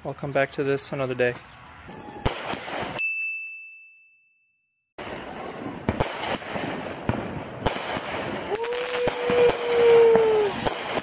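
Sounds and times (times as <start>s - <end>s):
fireworks cracking and popping: 2.2s - 3.0s, 5.0s - 11.0s.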